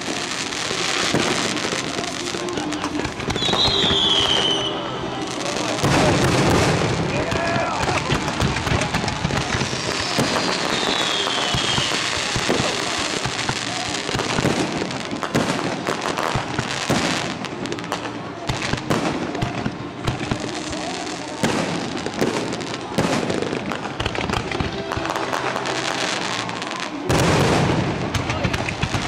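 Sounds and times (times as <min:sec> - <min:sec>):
fireworks popping and banging: 0:00.0 - 0:29.0.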